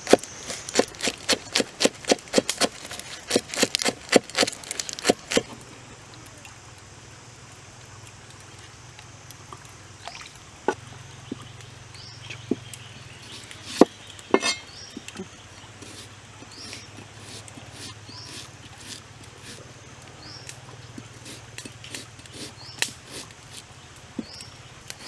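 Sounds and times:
knife chopping herbs on wood: 0.0s - 5.5s.

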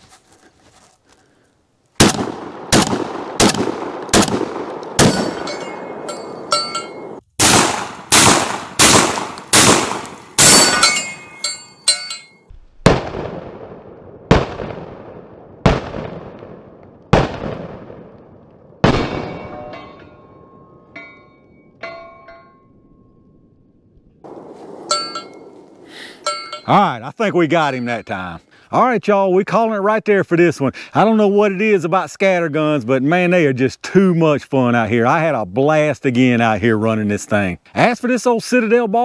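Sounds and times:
shotgun shots echoing: 2.0s - 11.3s, 12.8s - 20.5s, 24.3s - 25.8s
pellets ringing on steel targets: 5.0s - 7.2s, 10.4s - 12.5s, 19.0s - 23.2s, 24.8s - 25.6s, 26.2s - 26.8s.

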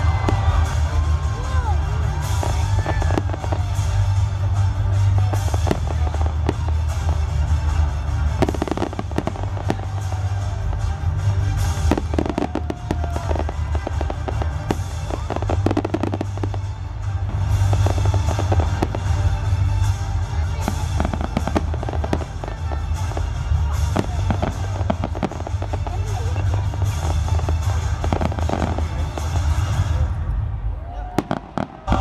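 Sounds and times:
fireworks bangs and crackling: 0.0s - 32.0s.

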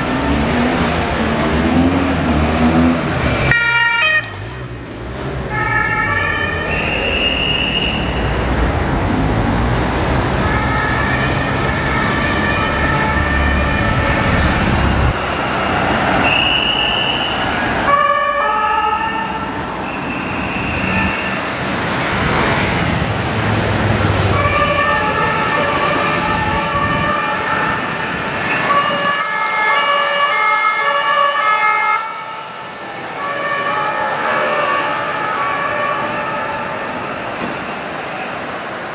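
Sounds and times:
engine and traffic noise: 0.0s - 38.9s
two-tone police sirens: 3.2s - 4.5s, 5.4s - 8.2s, 10.2s - 15.2s, 16.1s - 21.2s, 24.0s - 37.6s.

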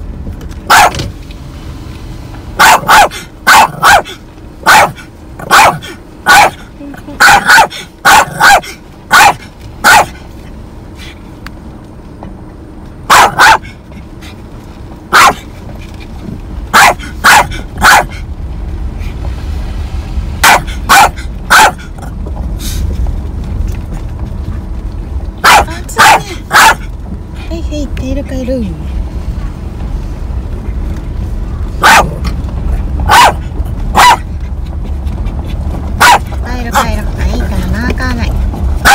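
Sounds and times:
car rumble: 0.0s - 38.9s
small dog barking: 0.7s - 1.0s, 2.6s - 10.2s, 13.1s - 13.7s, 15.1s - 15.5s, 16.7s - 18.2s, 20.4s - 21.9s, 25.4s - 26.9s, 31.8s - 32.2s, 33.0s - 34.3s, 36.0s - 36.9s.

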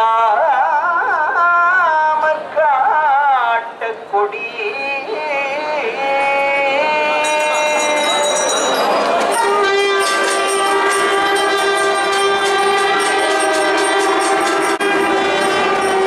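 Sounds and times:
person singing: 0.0s - 16.0s
temple bells ringing: 7.0s - 16.0s
steady horn-like tone: 9.6s - 16.0s.

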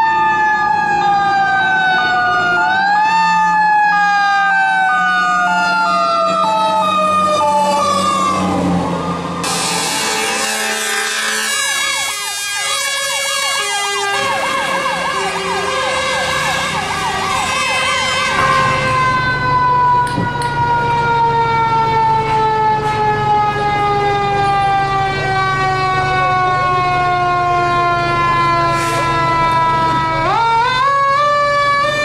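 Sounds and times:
mechanical siren winding down: 0.0s - 10.6s, 11.4s - 32.0s
fire truck siren sweeping: 0.0s - 32.0s
air horn blasts: 9.4s - 19.4s, 28.6s - 29.2s.

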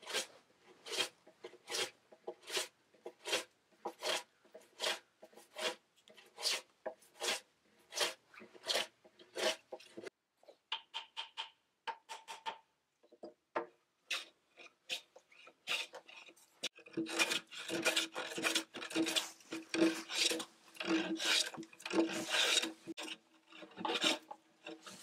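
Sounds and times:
hand plane rasping on wood: 0.0s - 5.8s, 6.4s - 10.1s, 16.9s - 23.1s.

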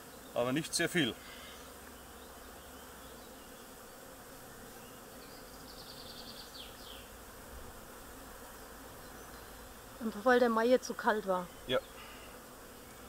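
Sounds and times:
honey bees humming: 0.0s - 13.0s.

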